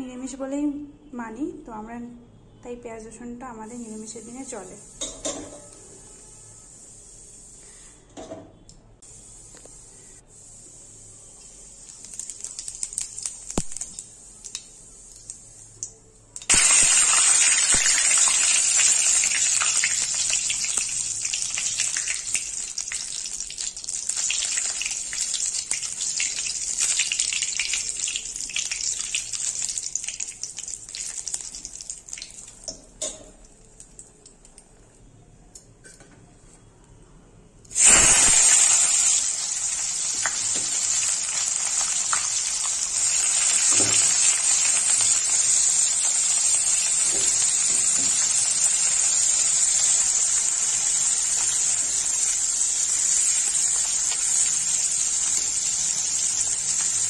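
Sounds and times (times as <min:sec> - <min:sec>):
onions sizzling in oil: 0:03.7 - 0:05.8, 0:09.1 - 0:33.2, 0:37.7 - 0:57.0
spices sizzling in hot oil: 0:03.7 - 0:07.9, 0:09.0 - 0:34.3, 0:37.7 - 0:57.0.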